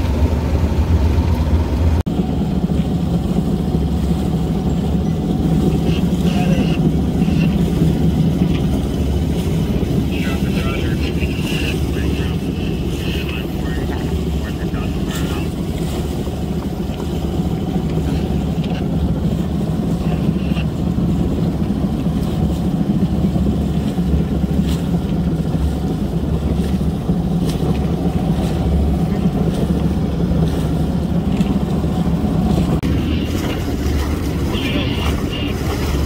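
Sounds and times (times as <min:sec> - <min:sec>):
boat motor droning: 0:00.0 - 0:36.0.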